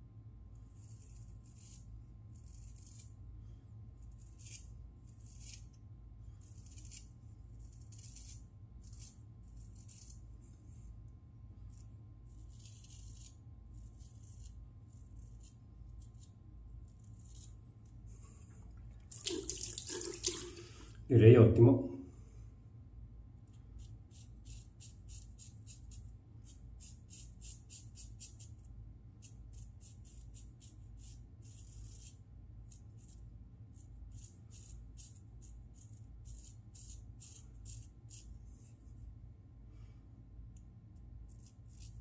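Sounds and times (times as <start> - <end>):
steady low hum: 0.0 - 42.0
razor scratching stubble: 0.7 - 3.2, 4.0 - 5.8, 6.4 - 10.3, 11.7 - 17.9, 23.8 - 38.7, 41.3 - 42.0.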